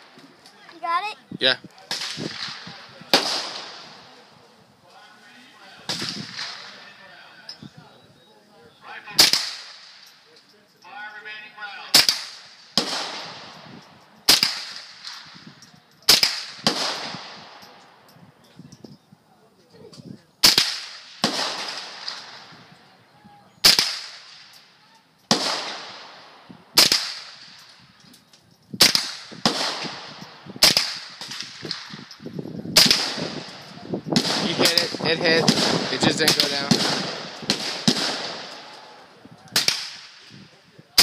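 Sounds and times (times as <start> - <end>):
rifle shots with echo: 1.9 - 4.3, 5.8 - 7.0, 9.2 - 10.1, 11.9 - 15.5, 16.1 - 18.0, 20.4 - 22.8, 23.6 - 24.6, 25.3 - 27.7, 28.8 - 40.4.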